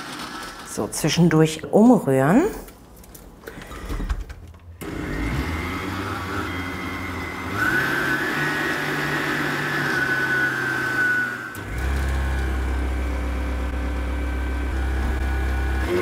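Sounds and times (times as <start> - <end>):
blender motor running: 0.0 - 0.8, 4.8 - 16.0.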